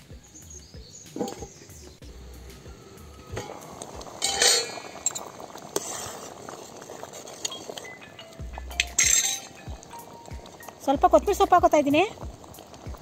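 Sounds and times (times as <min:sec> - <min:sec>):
pot bubbling at the boil: 0:00.1 - 0:13.0
steel pot lid clinking: 0:01.2 - 0:01.5, 0:03.3 - 0:05.4, 0:07.4 - 0:11.5.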